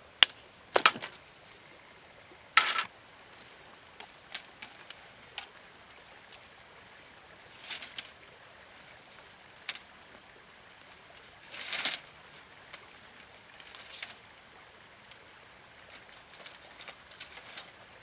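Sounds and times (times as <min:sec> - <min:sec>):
bamboo poles clicking together: 0:00.2 - 0:01.2, 0:02.6 - 0:02.9, 0:09.1 - 0:10.1, 0:10.9 - 0:12.1, 0:15.0 - 0:18.0
rustling clatter of poles: 0:00.7 - 0:01.6, 0:02.6 - 0:05.6, 0:07.4 - 0:08.2, 0:09.0 - 0:10.2, 0:10.8 - 0:14.2, 0:15.1 - 0:18.0.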